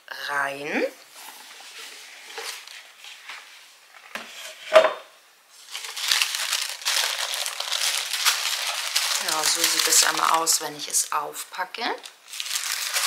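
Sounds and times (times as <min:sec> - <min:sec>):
paper crinkling: 0:01.2 - 0:04.1, 0:05.5 - 0:11.1, 0:11.9 - 0:13.0.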